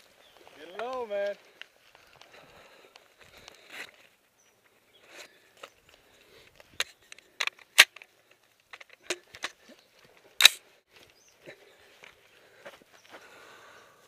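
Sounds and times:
rifle and gear clicks and rattles: 0:00.0 - 0:11.2.

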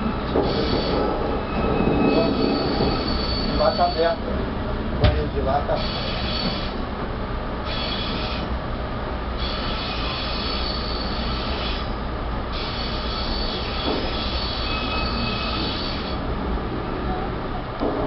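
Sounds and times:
steel wheel squeal: 0:00.0 - 0:04.2, 0:05.7 - 0:06.8, 0:07.7 - 0:08.5, 0:09.4 - 0:16.3
trains rumbling past: 0:00.0 - 0:18.0.

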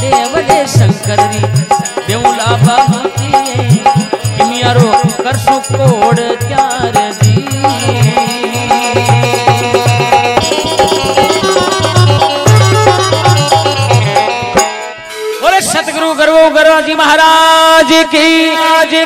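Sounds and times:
hand drum beating: 0:00.0 - 0:14.9
repeating melody: 0:00.0 - 0:16.6.

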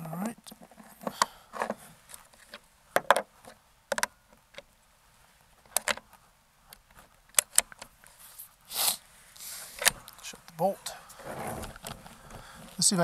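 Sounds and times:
air rifle bolt clicks: 0:06.7 - 0:07.9.

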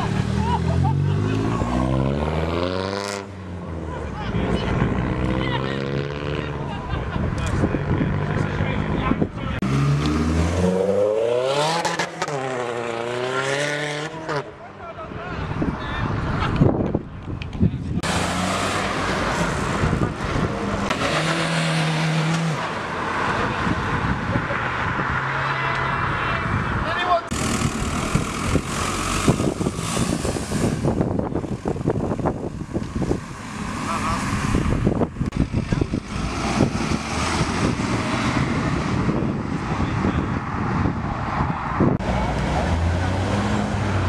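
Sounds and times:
car engine revving hard: 0:00.0 - 0:03.3, 0:09.6 - 0:14.4, 0:18.0 - 0:22.7, 0:33.1 - 0:39.4
car engine accelerating away: 0:09.6 - 0:14.4.

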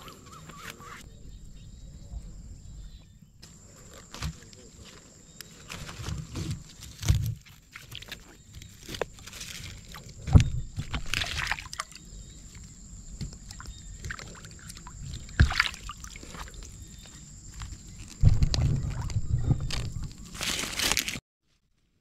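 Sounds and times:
water sloshing and splashing: 0:05.7 - 0:21.2.

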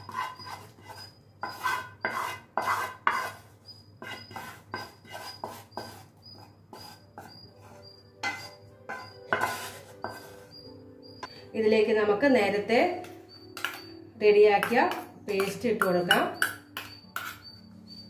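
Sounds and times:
wooden spatula scraping a pan: 0:00.0 - 0:10.7, 0:17.2 - 0:17.5
spatula knocking: 0:00.0 - 0:10.8, 0:13.0 - 0:17.6.

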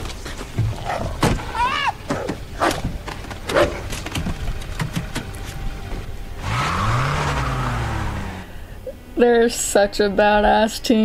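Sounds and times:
car engine revving and accelerating: 0:06.4 - 0:08.7.

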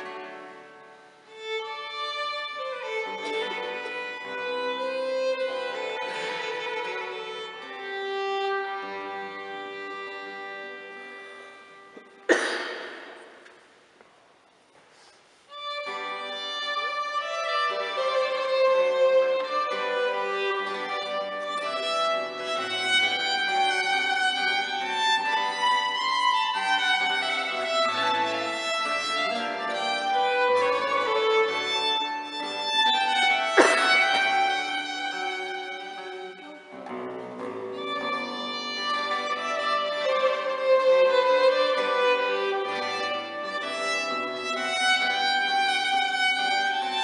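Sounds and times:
bowed strings playing melody: 0:00.0 - 0:13.5, 0:15.5 - 0:47.0
sharp percussive strike: 0:12.3 - 0:13.8, 0:33.6 - 0:34.2.

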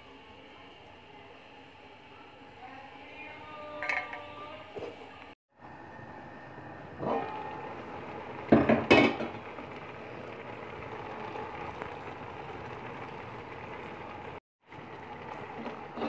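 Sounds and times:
boiling pot hissing: 0:04.4 - 0:16.0
pot lid clanking on rim: 0:08.5 - 0:09.4.

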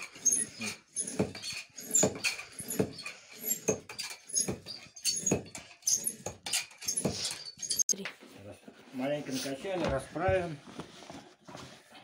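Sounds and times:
hand air pump wheezing: 0:00.0 - 0:07.8.

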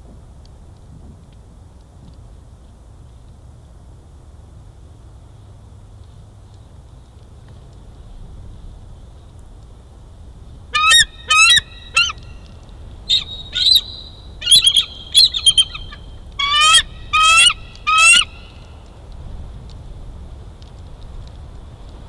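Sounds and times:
eagle high piping chirps: 0:10.8 - 0:18.7.

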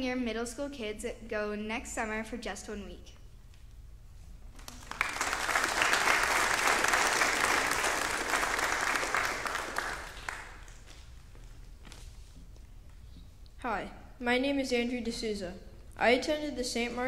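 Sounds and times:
congregation applauding: 0:04.6 - 0:11.1.

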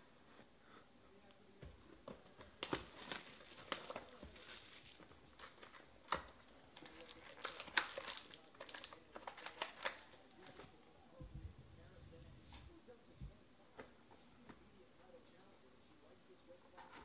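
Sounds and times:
foil packs crinkling: 0:02.6 - 0:10.7.

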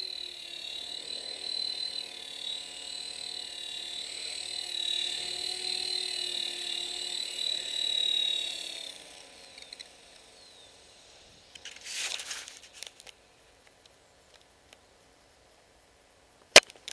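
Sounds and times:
helicopter motor and rotor whine: 0:00.0 - 0:12.8
rustling: 0:11.5 - 0:13.1.

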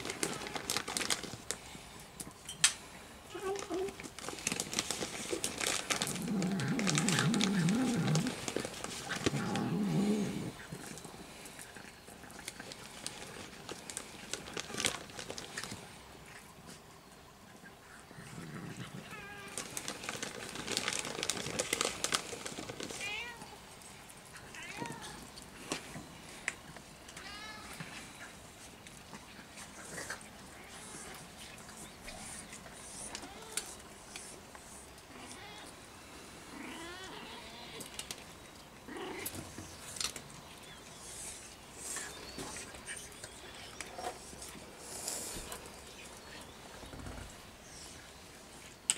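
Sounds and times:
dry kibble crunching: 0:00.0 - 0:16.8, 0:17.6 - 0:35.7
cat growling: 0:06.0 - 0:11.0, 0:36.5 - 0:37.9, 0:38.9 - 0:39.5.

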